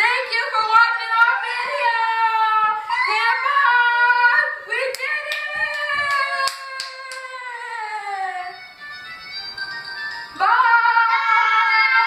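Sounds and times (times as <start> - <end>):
hand claps: 4.9 - 7.4.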